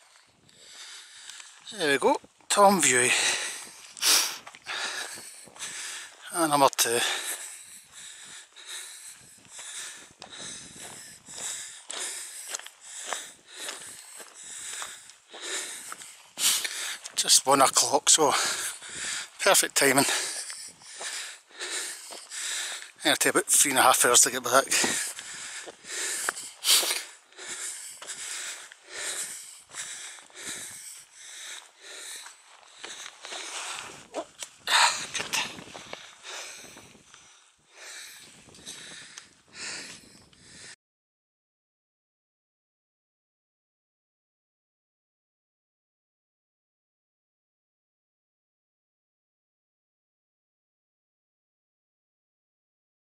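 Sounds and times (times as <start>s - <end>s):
person breathing hard: 0.0s - 1.7s, 3.0s - 17.2s, 18.2s - 40.8s.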